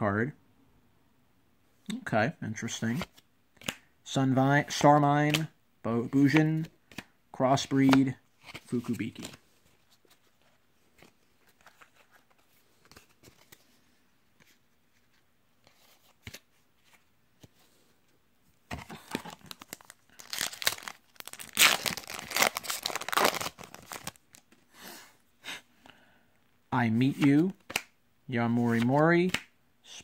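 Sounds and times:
faint clicks of cards handled: 6.2 - 7.1, 28.7 - 29.5
foil wrapper tearing and crinkling: 19.4 - 24.4.

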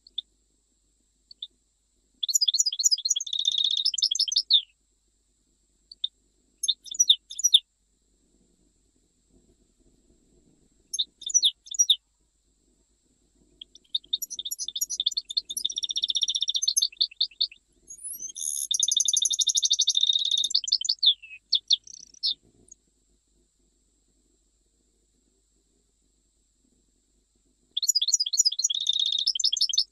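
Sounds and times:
goldfinch singing: 2.2 - 4.7, 6.6 - 7.6, 10.9 - 12.0, 13.6 - 22.4, 27.8 - 29.9.

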